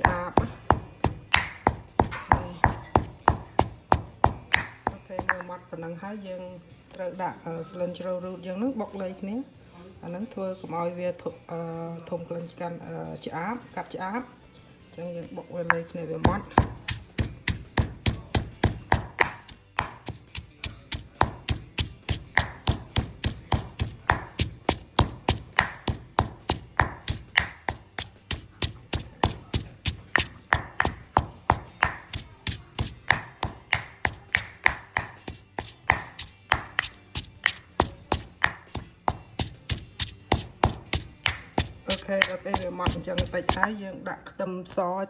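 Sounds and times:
stone pestle pounding in mortar: 0.0s - 5.5s, 15.7s - 43.8s.

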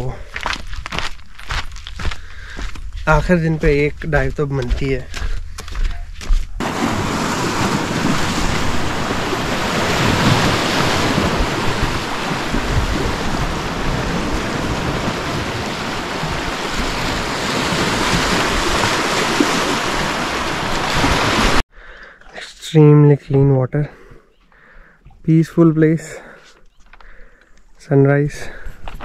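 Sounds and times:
wind blowing across microphone: 0.0s - 21.6s
waves washing against rocks: 6.6s - 21.6s.

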